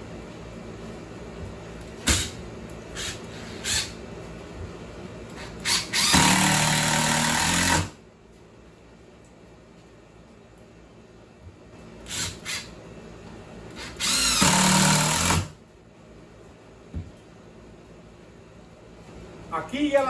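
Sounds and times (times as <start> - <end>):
cordless drill driving a screw: 5.4 - 8.0, 12.1 - 12.7, 13.8 - 15.5.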